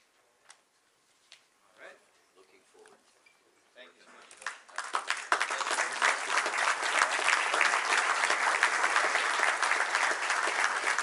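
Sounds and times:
people applauding: 4.3 - 11.0.

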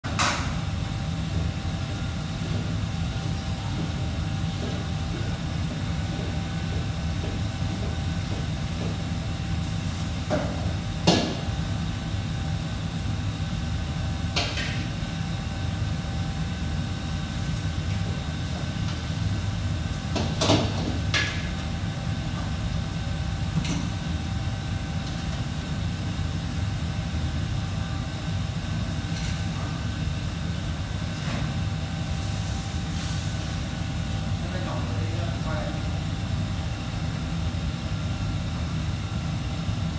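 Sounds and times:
ventilation fan hum: 0.0 - 39.9.

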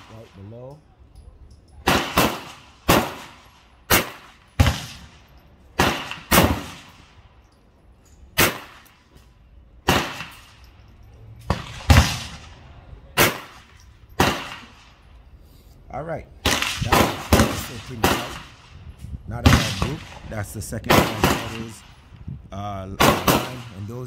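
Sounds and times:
gunshots with echo: 1.8 - 5.2, 5.8 - 7.1, 8.4 - 8.9, 9.8 - 10.5, 11.5 - 15.0, 16.4 - 18.8, 19.4 - 22.0, 23.0 - 24.0.

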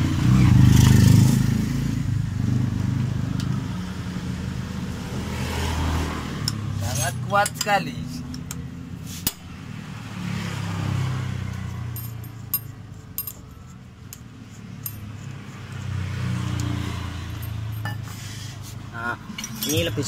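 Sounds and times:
sharp metal clicks: 12.0 - 16.8.

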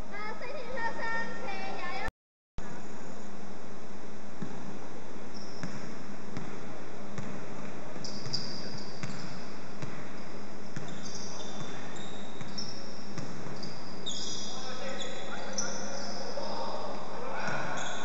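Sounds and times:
sneaker squeaks: 5.3 - 6.5, 8.0 - 16.5, 17.4 - 18.0
basketball bouncing on wooden floor: 5.6 - 6.6, 7.2 - 10.2, 10.8 - 13.8.

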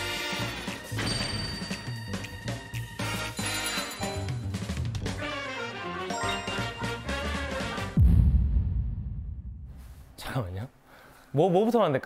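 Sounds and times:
background music: 0.0 - 8.6
deep falling boom effect: 8.0 - 9.8.

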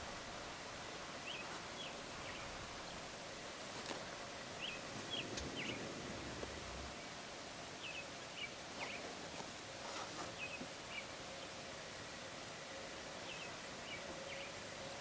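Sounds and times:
faint steady hum: 0.0 - 15.0
small birds chirping: 1.2 - 3.0, 3.9 - 9.5, 10.2 - 11.5.

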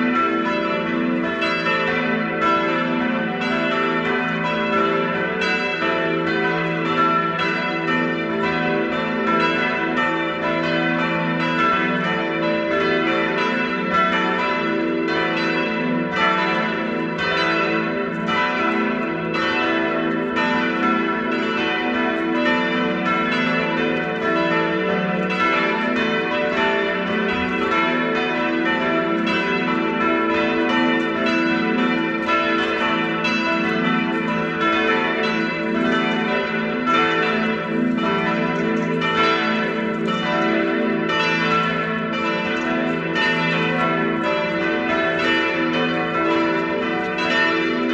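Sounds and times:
church bells ringing: 0.0 - 47.9.

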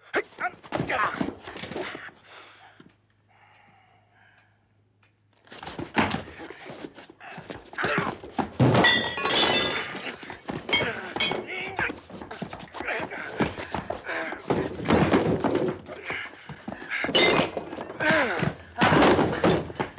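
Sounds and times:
bright clinking and ringing: 8.8 - 11.4, 17.2 - 17.6.

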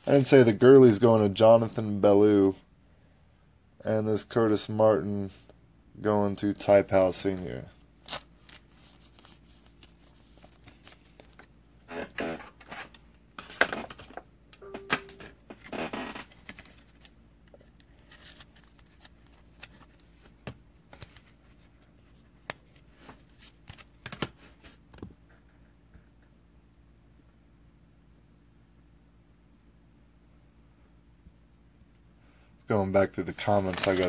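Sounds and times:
cards rustling and scraping: 7.2 - 14.2, 15.0 - 25.4, 33.2 - 34.0.

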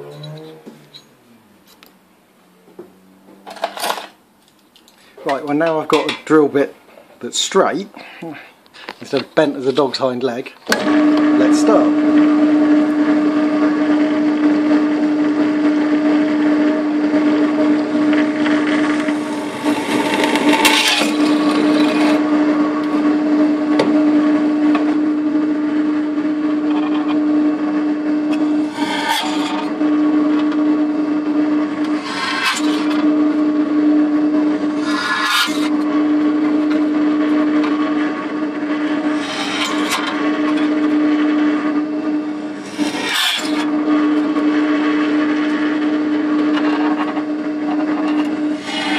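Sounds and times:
drill press motor humming: 10.7 - 48.9
drill bit cutting metal: 17.7 - 23.2, 26.4 - 48.9.

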